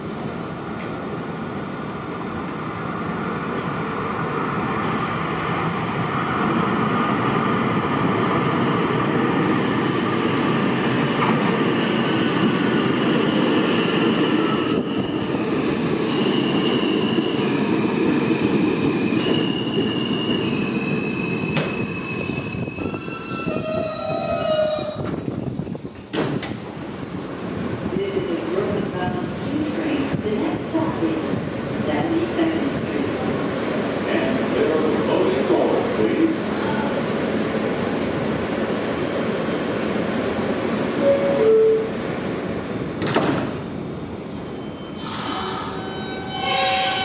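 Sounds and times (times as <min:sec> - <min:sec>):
subway train braking: 0:00.0 - 0:47.0.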